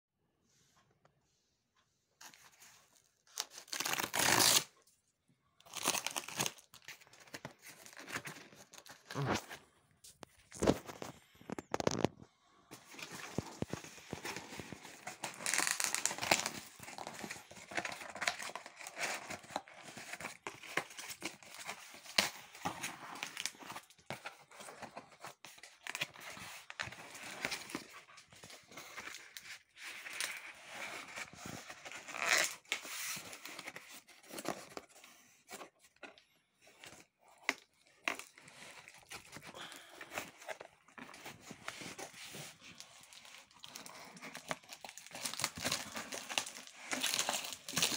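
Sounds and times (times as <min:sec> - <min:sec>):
crumpled paper rustling: 0:05.7 - 0:36.0, 0:36.6 - 0:47.9
cardboard box being opened: 0:12.7 - 0:35.9.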